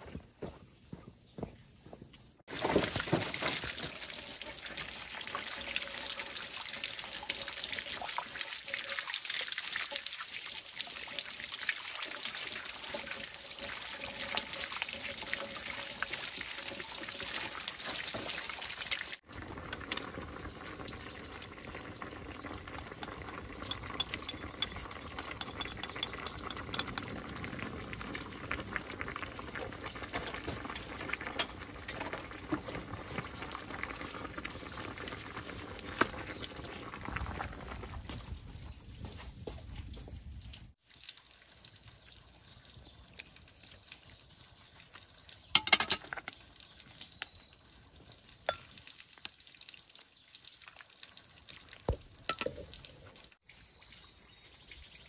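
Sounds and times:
water bubbling with crackles: 11.0 - 38.1.

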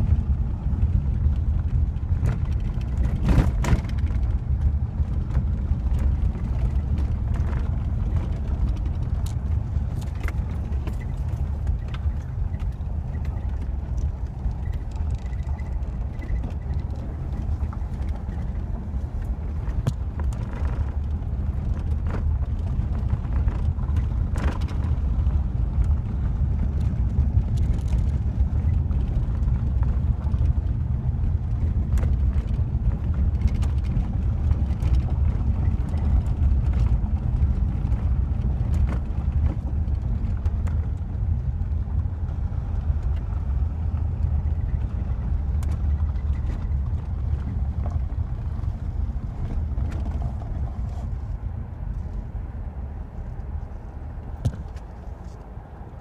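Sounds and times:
car rumbling on gravel: 0.0 - 56.0
sharp clicks and knocks: 54.4 - 55.5.

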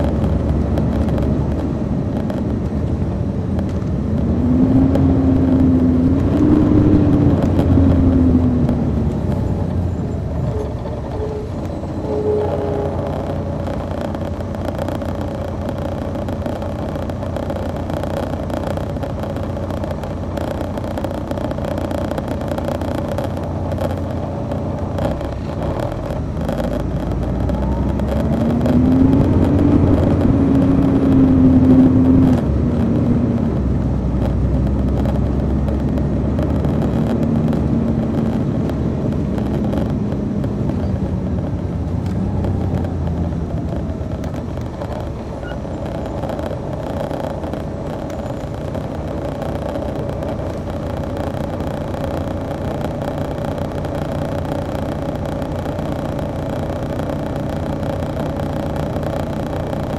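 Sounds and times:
bus diesel engine running: 0.0 - 59.9.

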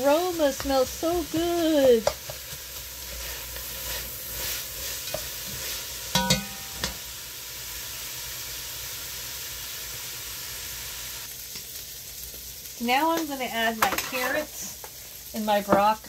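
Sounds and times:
vegetables sizzling in pot: 0.0 - 16.0
spatula stirring: 0.1 - 7.0.

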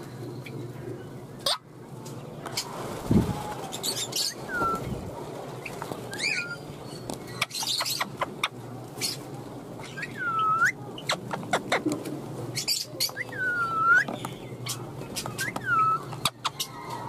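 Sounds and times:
parrots whistling: 3.9 - 4.8, 6.1 - 6.6, 9.8 - 10.8, 12.6 - 14.1, 15.4 - 16.9.

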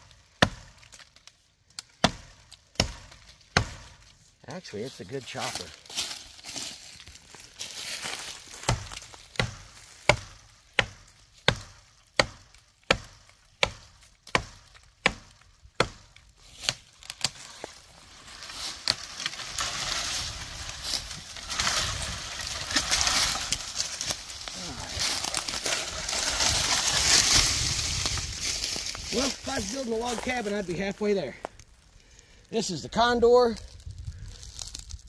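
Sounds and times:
axe chopping into tree trunk: 0.4 - 1.1, 2.0 - 4.0, 8.6 - 17.4
rustling noise: 17.4 - 30.8.

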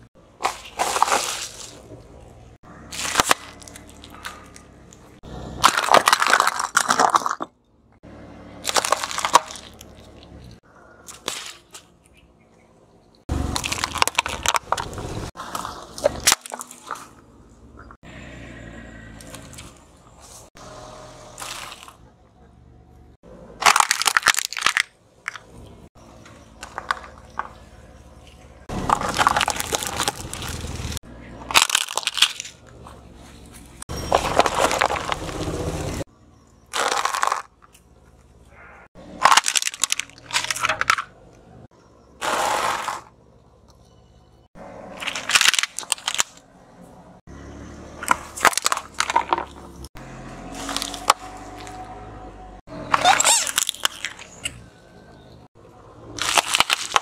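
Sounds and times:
tyre crushing crunchy food: 0.3 - 2.2, 2.9 - 4.8, 5.6 - 7.5, 8.6 - 11.9, 13.3 - 17.1, 23.6 - 25.5, 28.6 - 33.0, 34.0 - 36.0, 36.7 - 37.8, 39.0 - 41.0, 44.9 - 46.4, 48.0 - 51.8, 52.9 - 54.4, 56.1 - 57.0.

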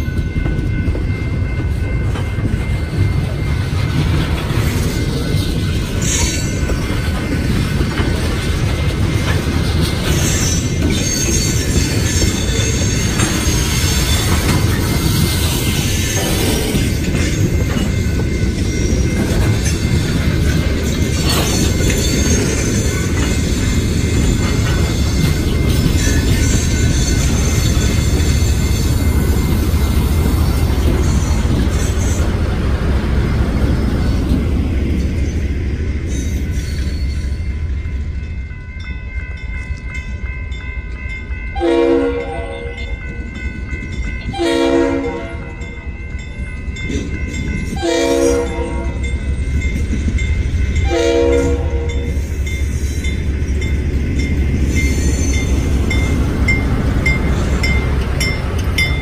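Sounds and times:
locomotive air horn blasts: 41.6 - 42.8, 44.4 - 45.5, 47.8 - 49.0, 50.9 - 52.1.

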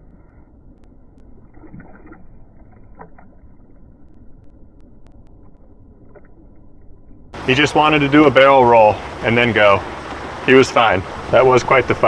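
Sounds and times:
small splashes of fish: 1.2 - 3.9
water lapping and splashing: 1.2 - 12.0.

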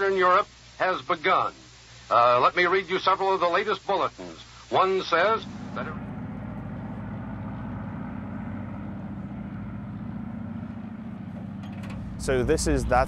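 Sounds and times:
engine humming steadily: 4.8 - 13.0.

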